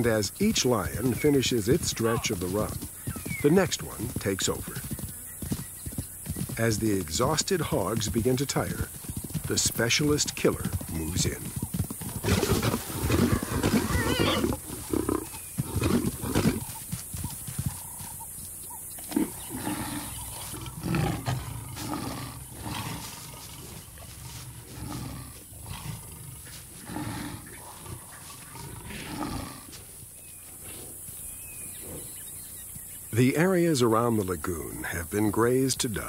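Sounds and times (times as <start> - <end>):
warthog squealing: 10.7 - 16.8
lions growling and snarling: 10.9 - 16.8, 18.8 - 29.8, 30.6 - 32.6.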